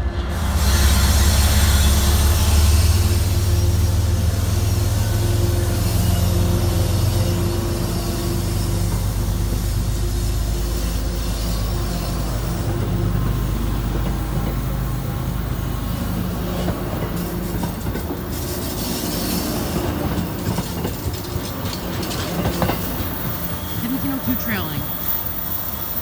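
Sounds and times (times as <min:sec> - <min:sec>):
train wheels rumbling on rails: 0:00.0 - 0:26.0
wheels clicking over rail joints: 0:05.8 - 0:26.0.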